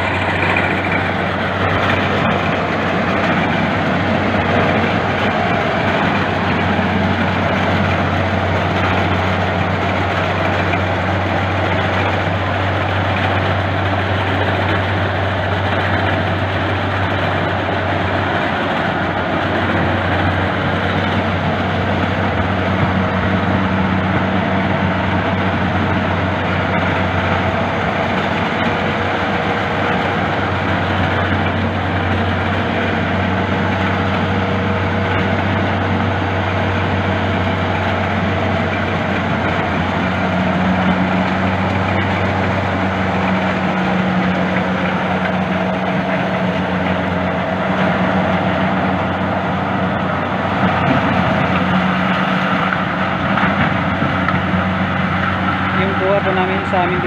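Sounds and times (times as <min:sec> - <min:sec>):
combine harvester engine hum: 0:00.0 - 0:57.0
threshing machinery rushing: 0:00.0 - 0:57.0.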